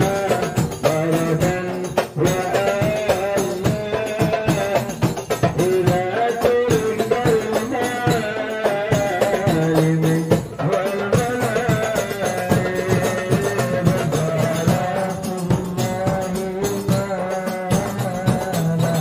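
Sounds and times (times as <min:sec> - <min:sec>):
frame drums beating: 0:00.0 - 0:19.0
group singing: 0:00.0 - 0:19.0.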